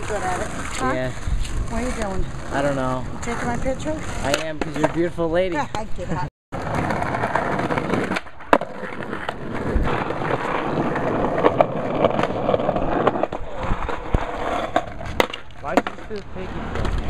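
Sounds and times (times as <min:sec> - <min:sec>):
skateboard wheels rolling on concrete: 0:00.0 - 0:17.0
skateboard clacks: 0:04.2 - 0:05.1, 0:06.6 - 0:17.0.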